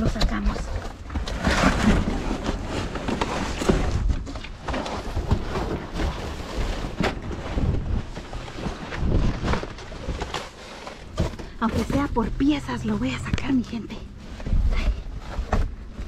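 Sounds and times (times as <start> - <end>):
cardboard box crumbling: 0.0 - 12.4
low rumble on microphone: 0.0 - 16.0.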